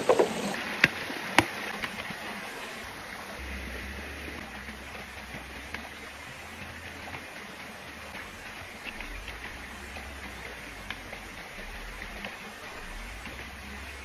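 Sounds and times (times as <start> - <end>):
forest stream rushing: 0.0 - 14.0
faint ticks and rustles: 4.3 - 14.0.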